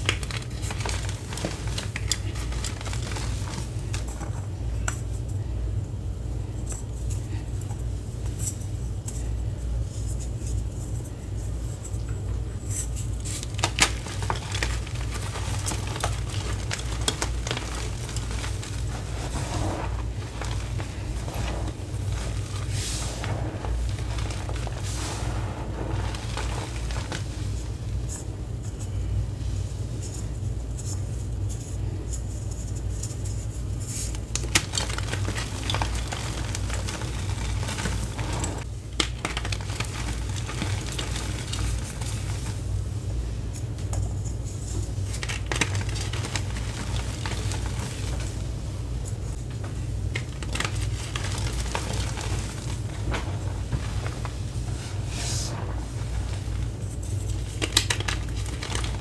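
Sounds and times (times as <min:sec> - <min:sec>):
chalk crunching and crackling: 0:00.0 - 0:05.0, 0:12.6 - 0:29.0, 0:32.8 - 0:42.7, 0:44.2 - 0:59.0
steady low hum: 0:00.0 - 0:59.0.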